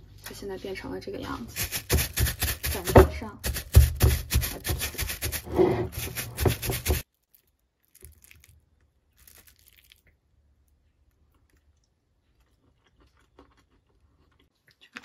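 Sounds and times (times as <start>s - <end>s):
plastic packaging crinkling and tearing: 9.2s - 10.1s.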